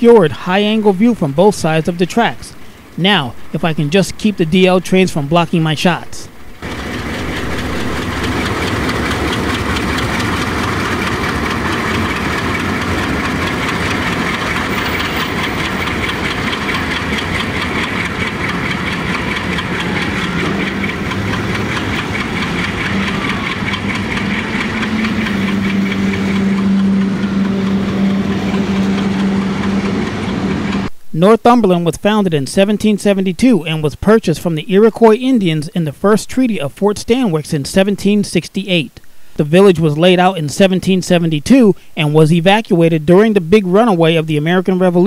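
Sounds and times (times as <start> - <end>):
diesel locomotive engine knocking: 0.0 - 30.9, 39.7 - 45.0
strong low hum: 0.0 - 31.6.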